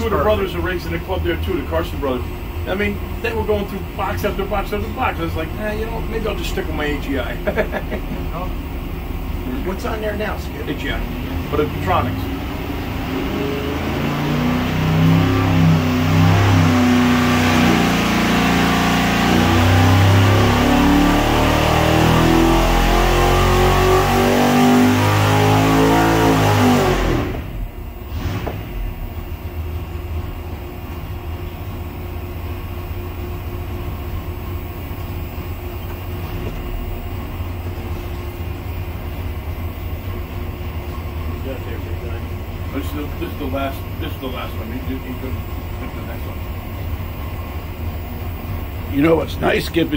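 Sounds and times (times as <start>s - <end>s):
racing engine revving under load: 0.0s - 29.5s.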